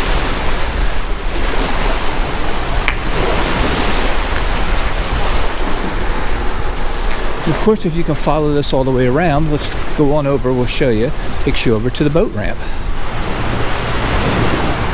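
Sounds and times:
wind rushing: 0:00.0 - 0:07.5
waves washing on rocks: 0:00.0 - 0:14.9
wind buffeting microphone: 0:00.0 - 0:14.9.

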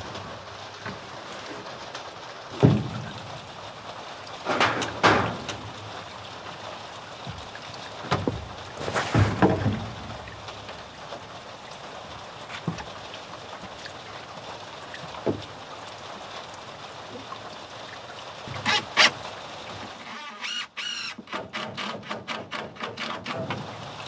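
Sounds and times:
wooden knocks and clunks: 0:02.6 - 0:03.2, 0:04.5 - 0:05.9, 0:07.2 - 0:10.8.

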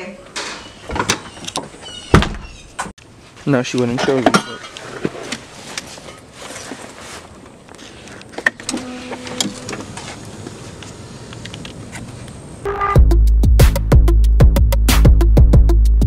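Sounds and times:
electronic music with heavy beat: 0:12.7 - 0:16.0.

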